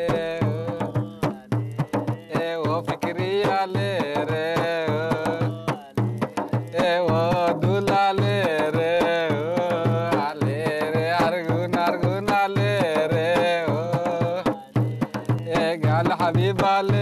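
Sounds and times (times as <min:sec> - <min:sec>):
drum strokes: 0:00.0 - 0:17.0
folk singing: 0:00.0 - 0:17.0.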